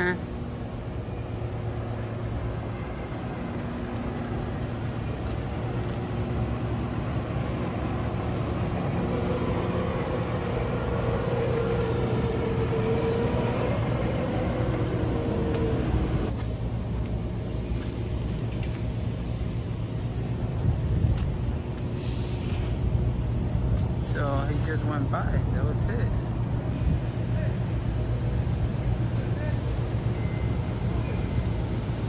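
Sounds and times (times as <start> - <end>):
wavering whine: 0.0 - 20.7
low machinery hum: 0.0 - 32.0
sweeper engine rumble: 0.0 - 32.0.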